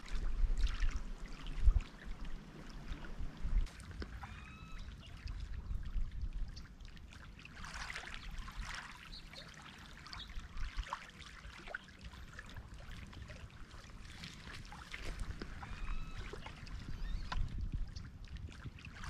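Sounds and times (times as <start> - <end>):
small waves lapping on pebbles: 6.9 - 17.4.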